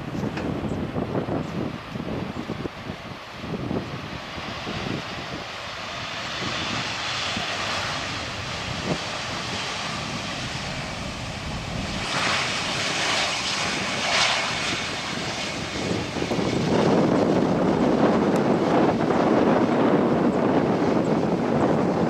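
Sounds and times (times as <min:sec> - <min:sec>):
jet airliner engine roar: 0:00.0 - 0:22.0
heavy low rumble: 0:06.8 - 0:19.7.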